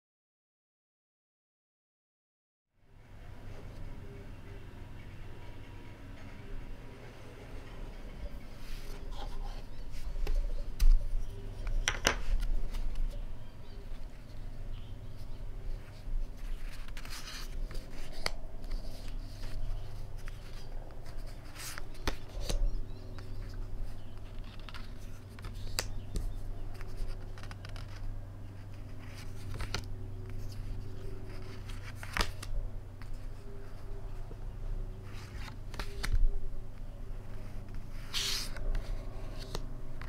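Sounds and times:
steady low hum: 2.8 - 40.0
stiff paper pages turning: 8.6 - 33.9, 35.0 - 36.3, 37.2 - 40.0.

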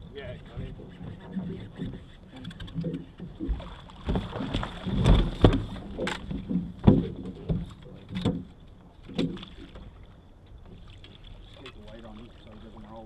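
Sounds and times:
knocks and thumps on boat deck: 0.4 - 9.8.

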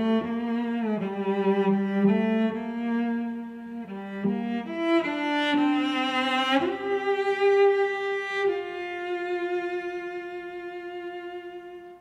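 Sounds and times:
bowed string slow melody: 0.0 - 12.0.

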